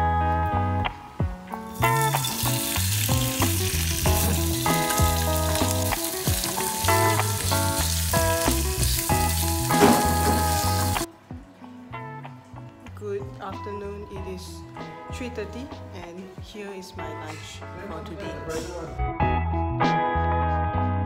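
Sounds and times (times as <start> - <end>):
background music: 0.0 - 21.0
meat sizzling in frying pan: 1.5 - 11.1.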